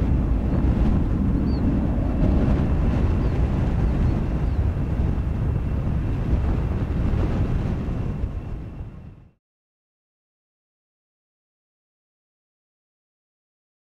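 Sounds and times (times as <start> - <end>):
jet engines rumbling: 0.0 - 9.4
wind buffeting microphone: 0.0 - 9.4.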